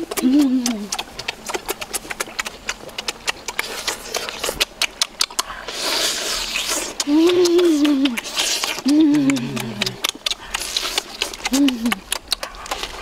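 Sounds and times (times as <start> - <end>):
wet chewing and lip-smacking: 0.0 - 13.0
breathy hiss: 5.3 - 13.0.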